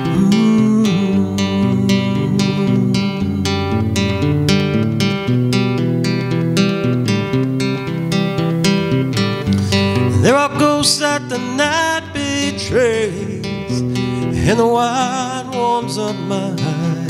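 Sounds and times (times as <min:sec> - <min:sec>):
man singing long sliding notes: 0:00.0 - 0:03.8, 0:09.6 - 0:17.0
acoustic guitar strumming: 0:00.0 - 0:17.0.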